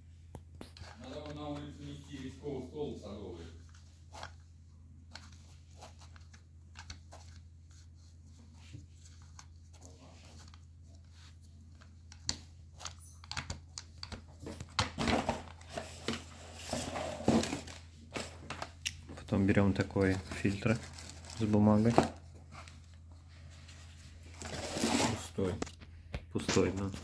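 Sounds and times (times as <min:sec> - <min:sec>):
dry tobacco rustling: 0:19.2 - 0:25.5.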